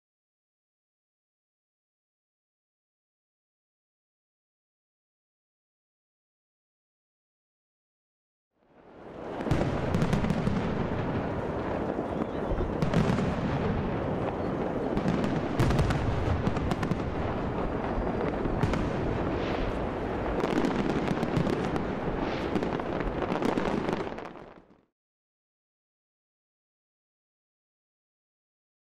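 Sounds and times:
rumble of fireworks bangs: 0:09.0 - 0:24.7
sharp firework cracks: 0:09.2 - 0:24.8.

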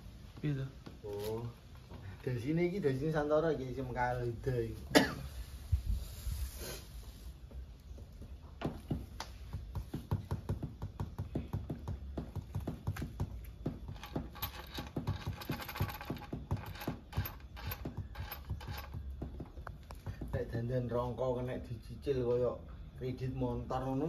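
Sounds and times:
small hard parts clicking: 0:12.6 - 0:20.2.

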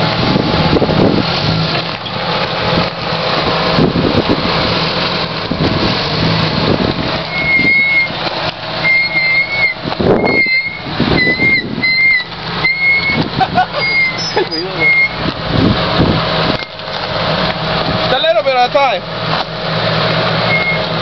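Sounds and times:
engine running at low revs: 0:00.0 - 0:21.0
tyres rolling over rocks: 0:00.0 - 0:21.0
high whistle-like squeak: 0:07.3 - 0:08.1, 0:08.8 - 0:13.2, 0:13.8 - 0:15.2, 0:20.5 - 0:20.9.

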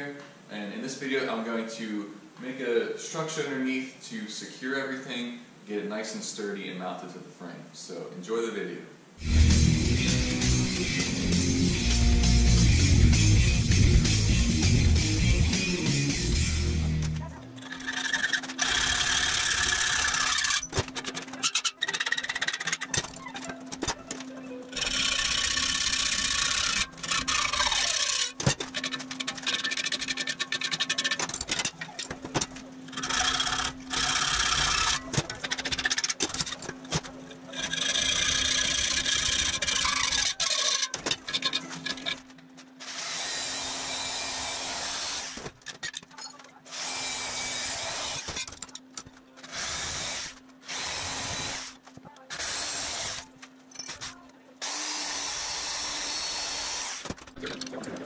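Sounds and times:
hacksaw cutting metal tube: 0:17.6 - 0:23.2, 0:24.7 - 0:42.2.

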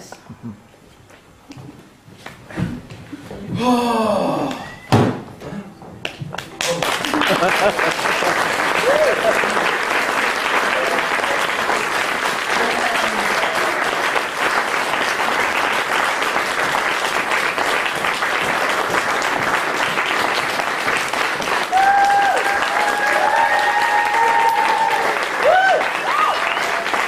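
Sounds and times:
audience applauding: 0:06.0 - 0:27.0
people whooping cheers: 0:06.7 - 0:09.7, 0:10.6 - 0:11.5, 0:12.5 - 0:14.1, 0:21.6 - 0:27.0.

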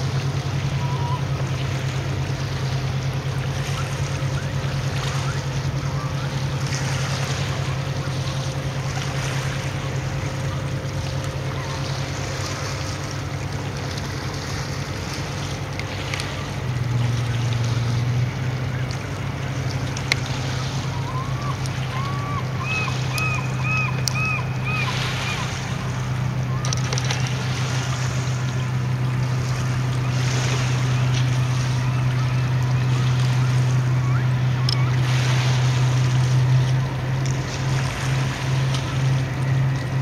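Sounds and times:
ferry engines droning: 0:00.0 - 0:40.0
water noise: 0:00.0 - 0:40.0
wind: 0:00.0 - 0:40.0.

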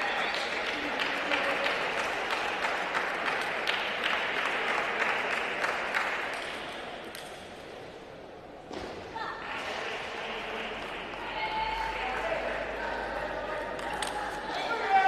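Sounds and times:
spectators applauding: 0:00.0 - 0:06.6.

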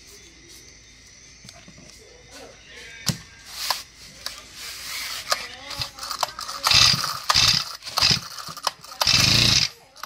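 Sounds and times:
recoil starter ratcheting whirr: 0:05.3 - 0:09.8.

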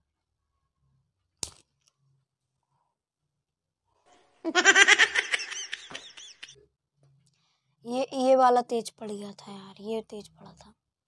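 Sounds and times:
burst of laughter: 0:04.5 - 0:06.5.

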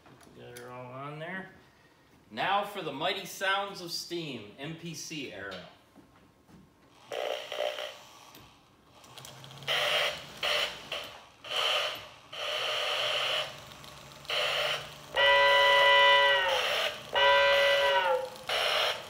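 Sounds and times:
loud steam whistle: 0:14.3 - 0:19.0.

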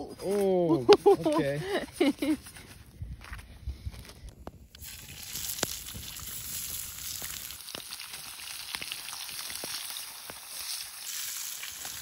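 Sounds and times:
fish sizzling in hot oil: 0:04.8 - 0:12.0.

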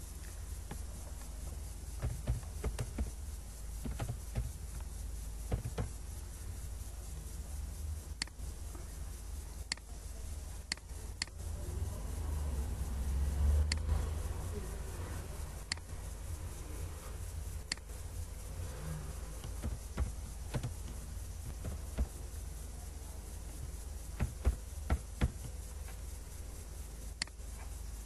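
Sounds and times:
steady low hum: 0:00.0 - 0:28.0
mouse clicks: 0:10.7 - 0:11.4.

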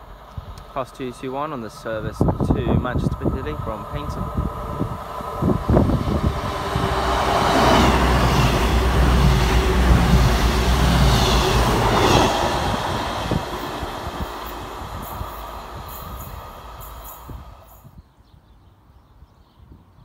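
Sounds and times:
train passing at speed: 0:00.0 - 0:18.0.

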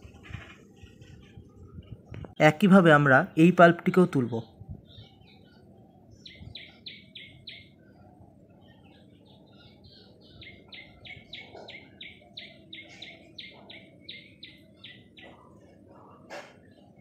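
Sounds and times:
low background noise: 0:00.0 - 0:17.0
bird chirping: 0:04.0 - 0:17.0.

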